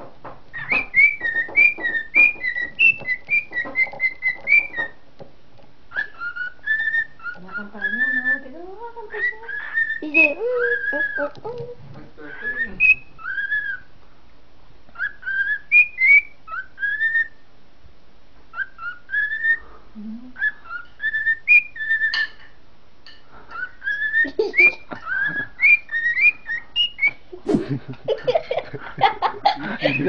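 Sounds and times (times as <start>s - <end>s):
cockatiel whistling and chirping: 0.5s - 5.0s, 5.9s - 8.5s, 9.1s - 11.3s, 12.3s - 13.9s, 14.9s - 17.4s, 18.5s - 19.7s, 20.4s - 22.4s, 23.5s - 27.2s.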